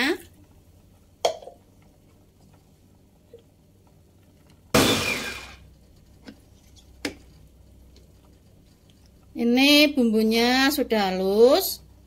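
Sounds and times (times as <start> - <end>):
electric chopper whirring: 4.8 - 5.6.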